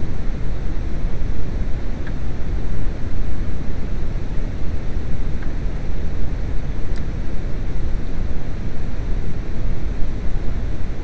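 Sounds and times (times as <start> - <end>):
faint light clicks: 6.9 - 7.2.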